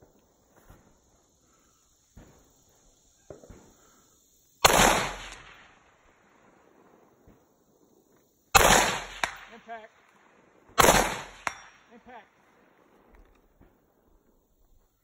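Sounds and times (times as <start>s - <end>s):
rifle shot echoing: 4.6s - 5.9s, 8.5s - 9.9s, 10.8s - 12.0s.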